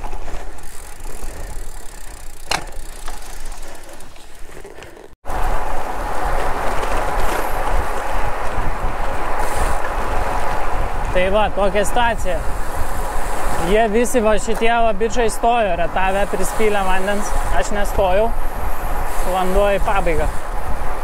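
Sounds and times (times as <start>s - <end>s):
bicycle tyres on asphalt: 0.0s - 21.0s
wind noise: 5.3s - 21.0s.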